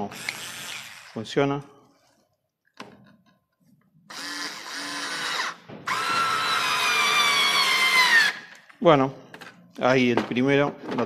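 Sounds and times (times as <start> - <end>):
cordless screwdriver motor whining: 4.1 - 8.4.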